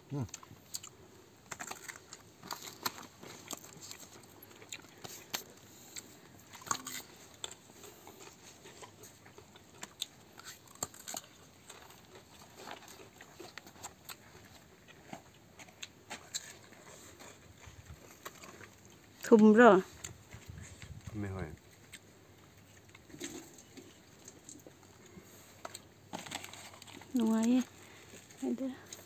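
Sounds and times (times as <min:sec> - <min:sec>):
person biting and chewing fruit: 0:00.2 - 0:19.3.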